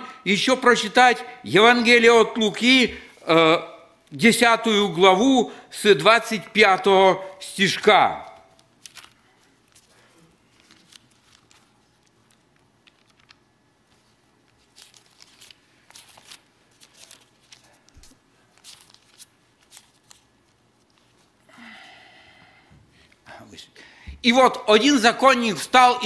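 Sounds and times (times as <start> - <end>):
paper pages rustling: 8.2 - 21.4.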